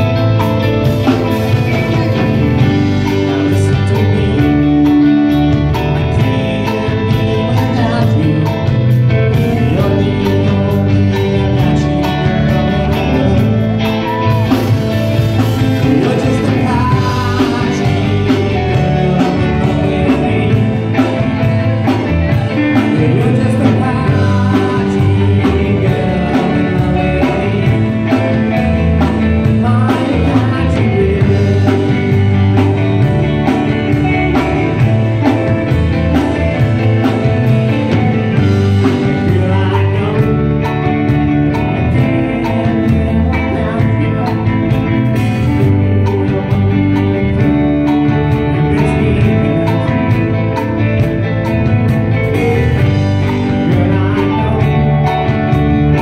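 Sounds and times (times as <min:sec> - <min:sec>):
live band playing: 0:00.0 - 0:56.0
person singing: 0:00.0 - 0:56.0.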